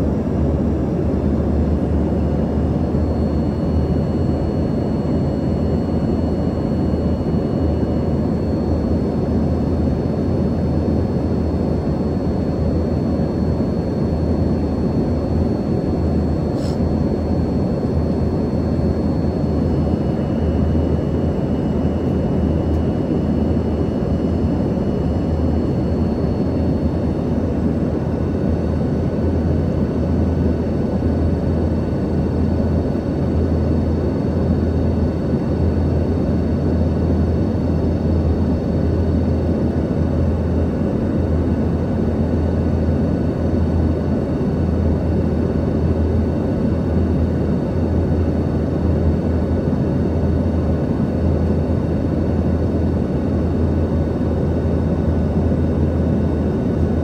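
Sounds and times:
jet engine hum: 0:00.0 - 0:57.0.

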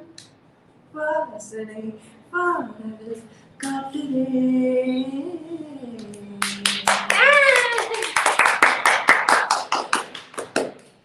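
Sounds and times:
people clapping: 0:06.4 - 0:11.0.

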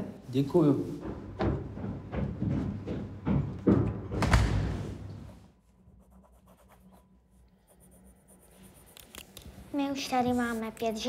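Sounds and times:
door thudding shut: 0:03.7 - 0:05.1
felt-tip pen scratching paper: 0:05.9 - 0:09.5.

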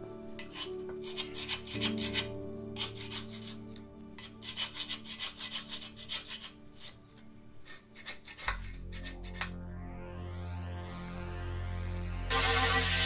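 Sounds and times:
metal scraper scraping steel: 0:00.4 - 0:09.6.

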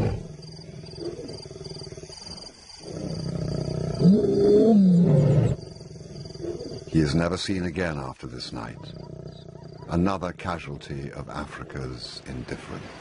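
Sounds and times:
lion growling and roaring: 0:00.0 - 0:07.2, 0:08.7 - 0:10.1.

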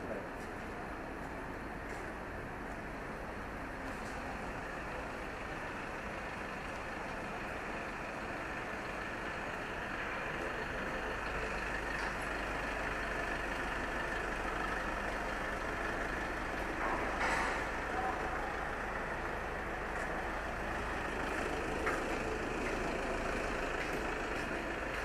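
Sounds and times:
vehicle engine running: 0:00.0 - 0:25.0.

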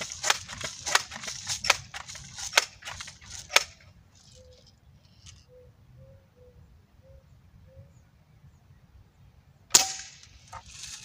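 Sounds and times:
air rifle clicks and clacks: 0:00.0 - 0:05.4.

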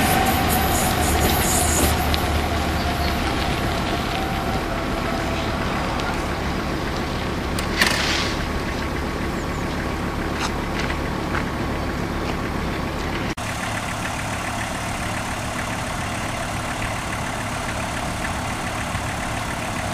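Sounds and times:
diesel railcar engine rumble: 0:00.0 - 0:19.9.

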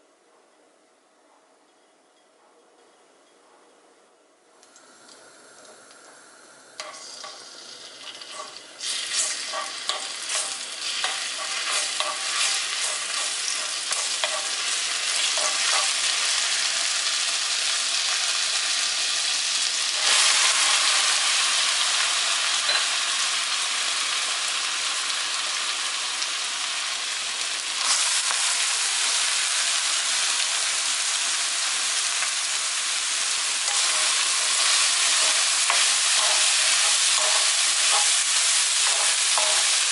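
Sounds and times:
garlic sizzling in oil: 0:04.8 - 0:39.9
spatula clicking and scraping: 0:08.0 - 0:16.2, 0:33.7 - 0:39.9.

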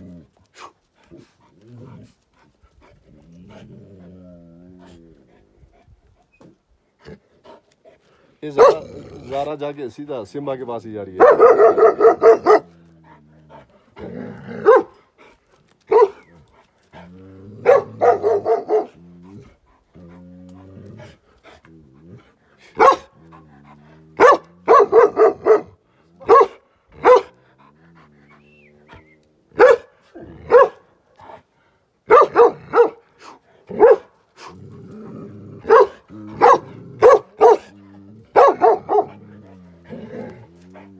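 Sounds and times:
dogs growling low: 0:00.0 - 0:09.8, 0:11.1 - 0:40.9
dogs barking deeply: 0:08.4 - 0:09.6, 0:11.0 - 0:12.8, 0:13.4 - 0:15.0, 0:15.8 - 0:16.3, 0:16.9 - 0:21.5, 0:22.2 - 0:28.5, 0:29.5 - 0:31.4, 0:32.0 - 0:34.6, 0:35.5 - 0:40.9.

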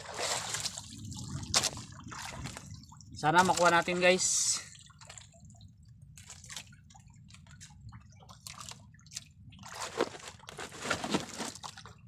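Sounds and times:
steady low rumble: 0:00.0 - 0:03.4
water dripping and sloshing: 0:00.0 - 0:12.0.

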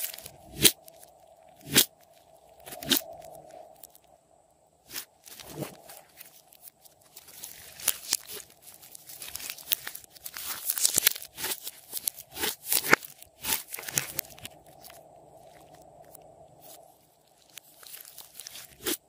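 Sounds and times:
slime crackling and popping: 0:06.1 - 0:14.6.

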